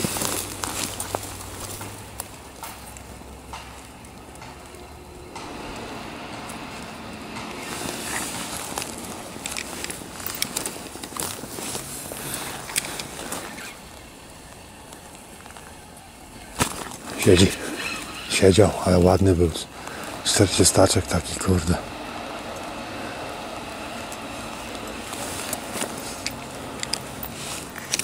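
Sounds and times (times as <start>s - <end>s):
jacket and rod handling noise: 7.3s - 13.8s, 16.4s - 18.2s, 24.1s - 28.0s.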